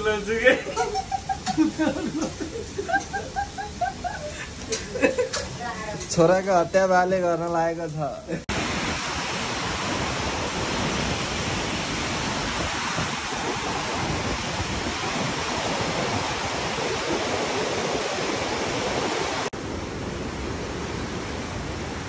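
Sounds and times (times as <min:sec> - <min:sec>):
fast river rushing: 0:08.5 - 0:22.0.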